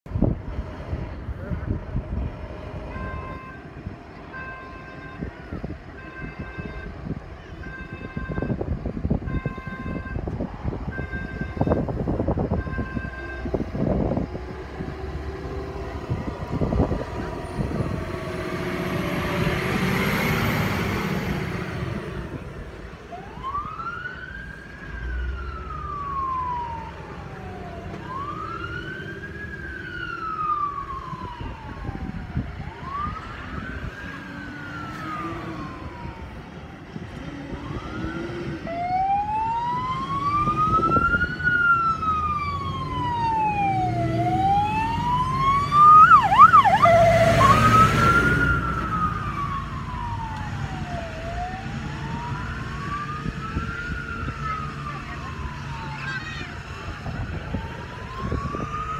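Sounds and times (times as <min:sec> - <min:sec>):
truck passing close: 0:00.1 - 0:58.9
fire engine horn blasts: 0:04.4 - 0:10.3
siren wailing: 0:23.1 - 0:58.9.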